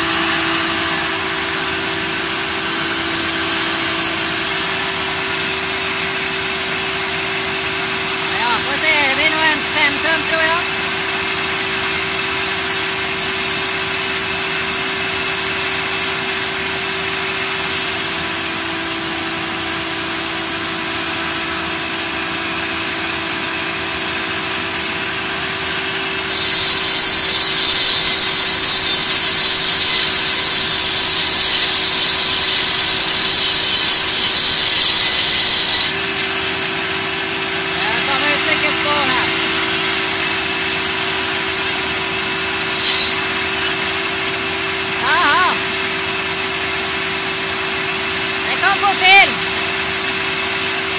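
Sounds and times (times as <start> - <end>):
circular saw humming: 0.0 - 10.9, 26.3 - 50.7
saw blades cutting log: 0.0 - 11.6, 26.1 - 50.9.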